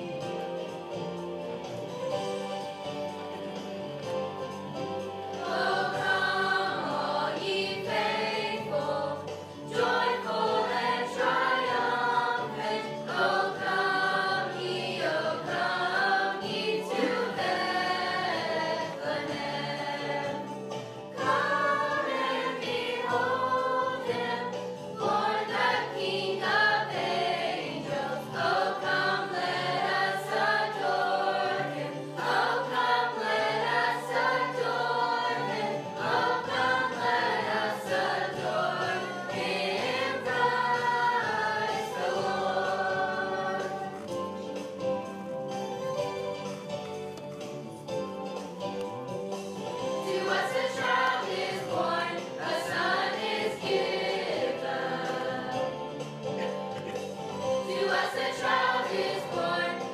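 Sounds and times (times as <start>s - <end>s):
youth choir singing: 5.3s - 44.3s, 49.8s - 56.2s, 57.4s - 59.9s.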